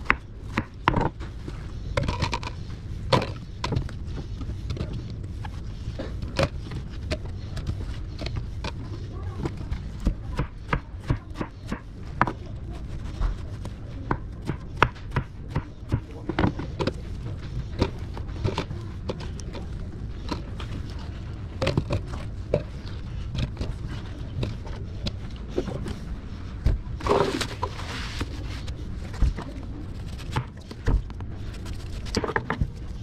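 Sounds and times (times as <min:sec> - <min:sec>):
steady low hum: 0:00.0 - 0:33.0
scuffling noise: 0:23.7 - 0:33.0.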